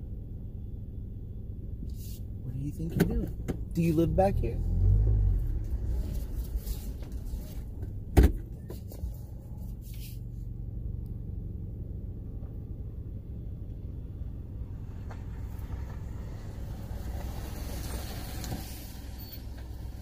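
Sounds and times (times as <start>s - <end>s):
vehicle engines idling: 0.0s - 20.0s
sharp thump: 8.1s - 8.6s.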